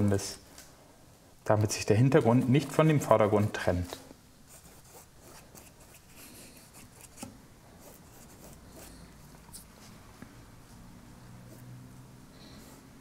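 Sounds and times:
paintbrush scratching on canvas: 4.5 - 10.0.

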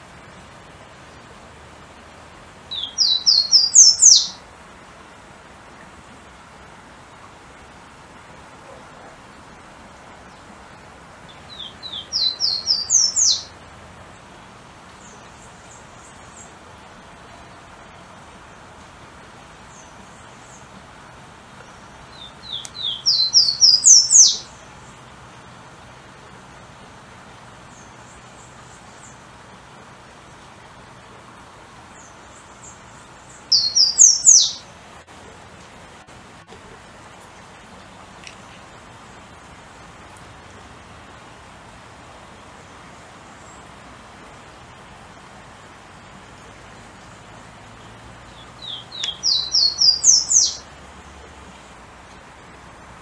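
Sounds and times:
background hiss: 0.0 - 53.0
warbler whistled song: 2.7 - 4.4, 11.3 - 13.6, 21.7 - 24.6, 32.0 - 34.7, 47.8 - 50.7.

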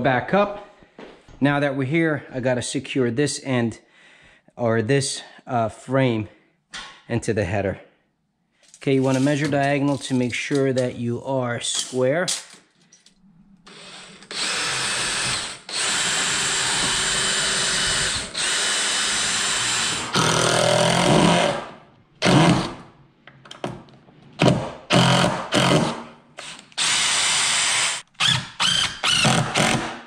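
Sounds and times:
impact driver driving screws: 13.7 - 22.8, 24.4 - 30.0.

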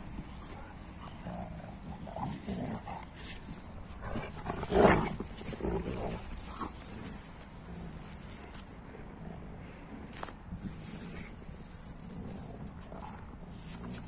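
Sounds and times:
dogs scuffling: 0.0 - 8.8.

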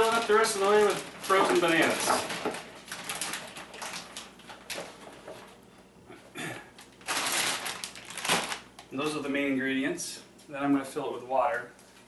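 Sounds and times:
frozen fruit clattering in plastic jar: 0.0 - 5.5, 7.0 - 8.6
plastic bag rustling: 0.0 - 5.7, 6.8 - 8.8.

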